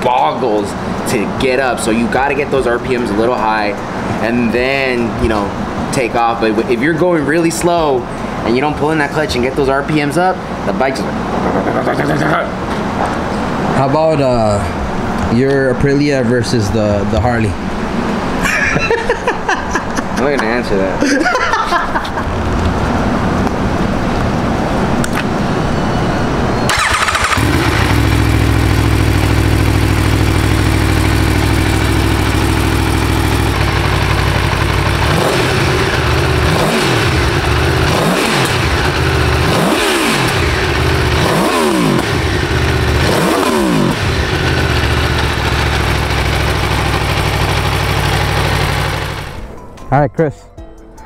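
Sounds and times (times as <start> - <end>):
engine revving in throttle blips: 26.7 - 49.5
motorcycle engine idling: 26.7 - 49.5.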